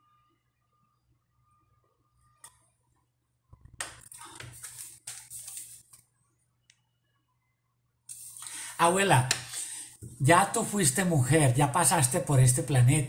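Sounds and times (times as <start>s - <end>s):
paper rustling: 3.9s - 6.0s.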